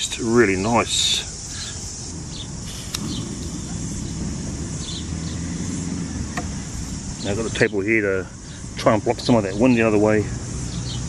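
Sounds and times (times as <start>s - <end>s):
insects chirring: 0.0s - 11.0s
low rumble: 1.5s - 8.4s.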